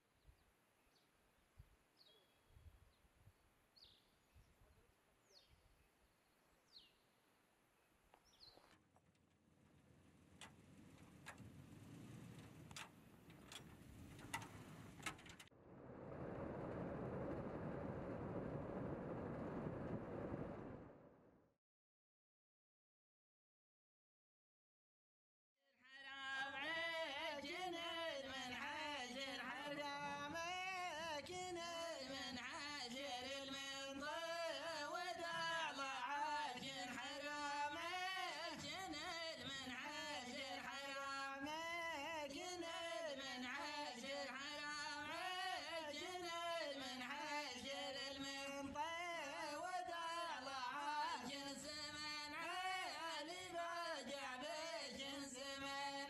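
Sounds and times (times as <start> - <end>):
person singing unaccompanied: 25.8 - 56.0.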